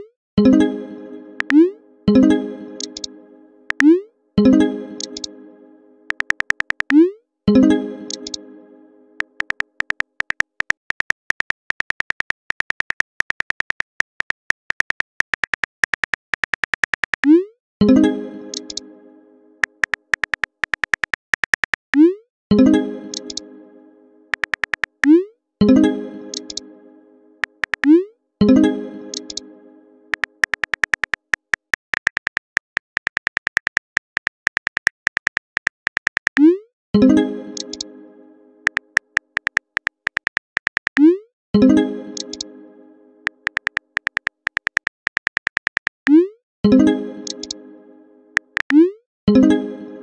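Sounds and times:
phone keyboard key clicks: 2.8 - 3.1, 5.0 - 5.3, 6.1 - 7.0, 9.2 - 17.3, 19.6 - 21.9, 23.1 - 23.4, 24.3 - 25.1, 26.3 - 26.6, 27.4 - 27.9, 30.1 - 36.4, 38.7 - 41.0, 43.4 - 46.1, 47.2 - 47.6, 48.4 - 48.7.

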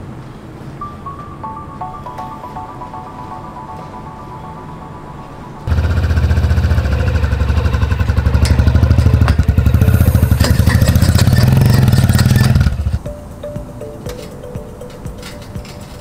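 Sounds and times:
vehicle engine running loudly: 5.7 - 13.0.

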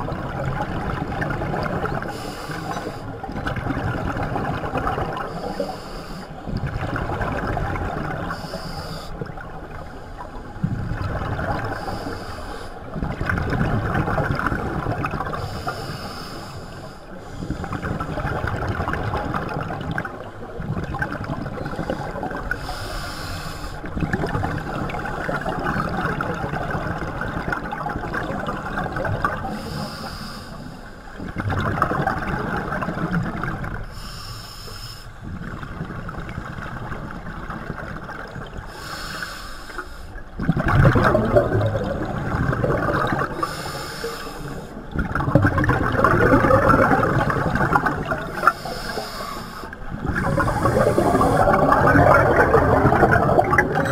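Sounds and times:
regulator inhalation hiss: 8.4 - 9.2, 15.4 - 17.5, 22.6 - 23.8, 29.5 - 31.1, 33.9 - 35.2, 38.8 - 40.2, 43.4 - 44.8, 48.4 - 51.6
bubbling exhalation underwater: 40.4 - 43.4, 44.9 - 48.6, 49.9 - 53.9.

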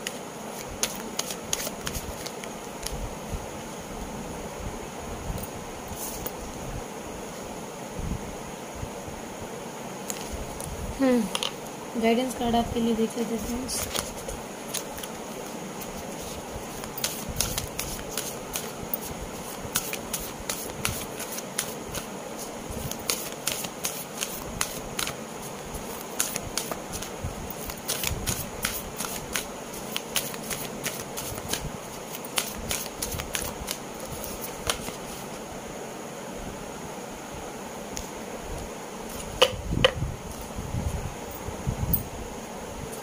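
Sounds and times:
cards shuffling: 0.0 - 3.0, 13.4 - 35.4.

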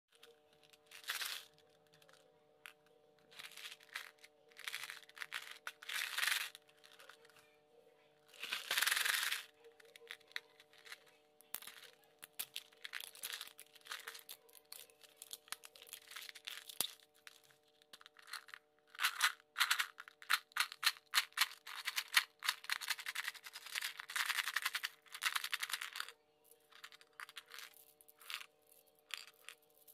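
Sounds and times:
faint steady background tones: 0.1 - 29.9.

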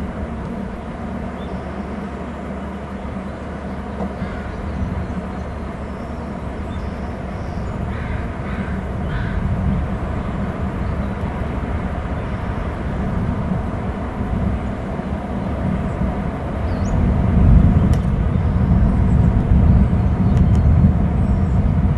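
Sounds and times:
surf rumble: 0.0 - 21.9
faint bird calls: 2.6 - 9.5
wind on microphone: 4.0 - 21.9.

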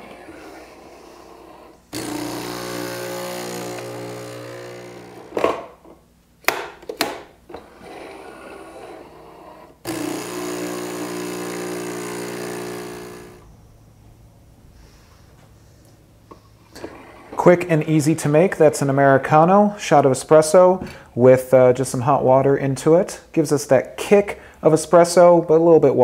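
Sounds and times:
espresso machine pump humming: 1.9 - 5.4, 9.9 - 13.5.

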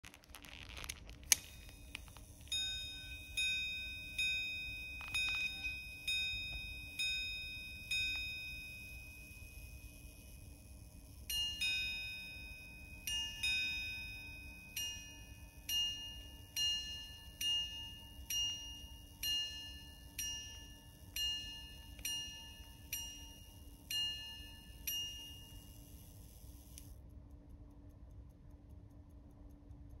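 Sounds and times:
pocket watch chiming on gongs: 1.4 - 26.8.

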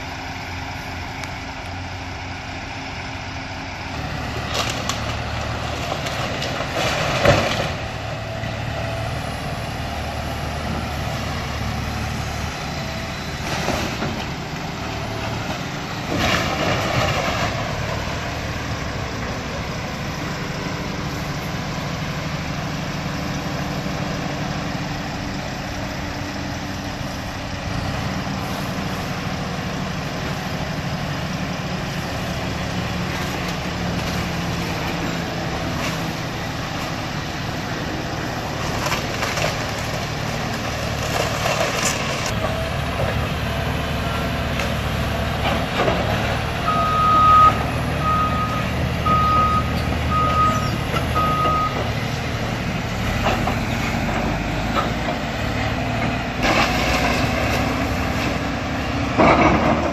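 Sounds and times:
excavator diesel engine running: 0.0 - 59.9
timber cracking and debris crashing: 4.4 - 7.8, 38.5 - 42.3.

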